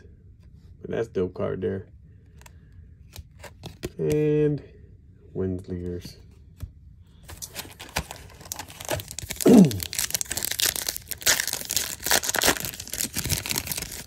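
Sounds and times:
foil wrapper crinkling and tearing: 7.4s - 14.0s.

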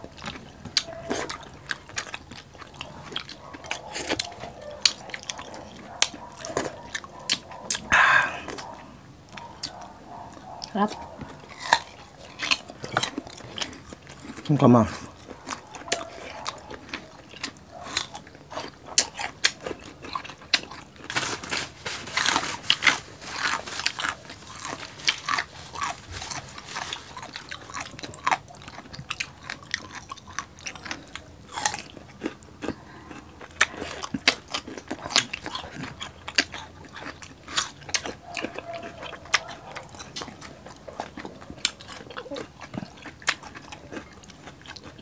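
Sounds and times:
mouth clicks and crunches: 0.0s - 45.0s
people chewing food: 0.0s - 45.0s.

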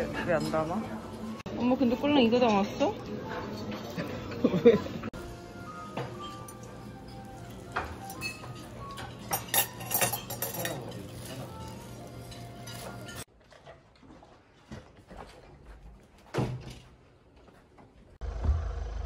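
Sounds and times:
dining room hum: 0.0s - 13.3s
plates and cutlery clinking: 2.1s - 4.9s, 5.8s - 13.3s.

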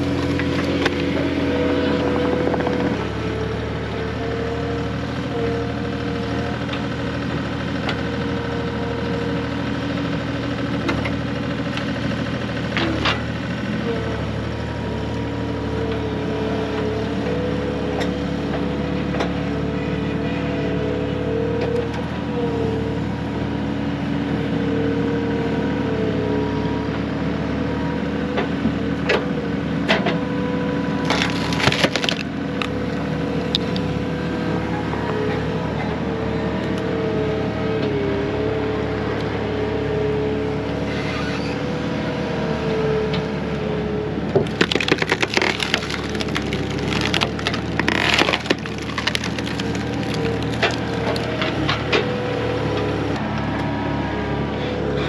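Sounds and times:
engine running: 0.0s - 55.0s
sharp cracks: 44.5s - 51.0s.

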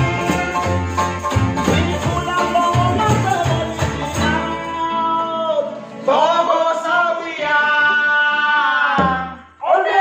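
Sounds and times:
men singing in harmony: 0.0s - 5.5s, 6.1s - 10.0s
low strumming: 0.0s - 6.8s.

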